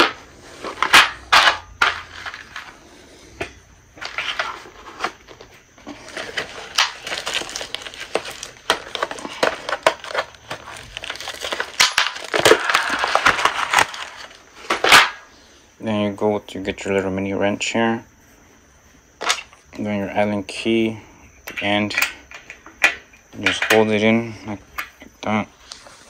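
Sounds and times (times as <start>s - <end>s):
rustling and crinkling: 0.0s - 3.1s, 3.9s - 15.2s.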